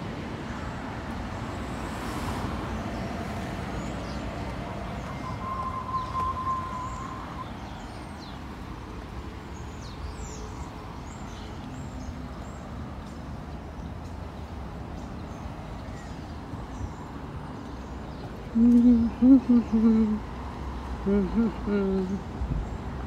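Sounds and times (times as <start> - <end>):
traffic rumble: 0.0 - 23.0
short high tone: 5.1 - 7.5
small birds chirping: 9.2 - 23.0.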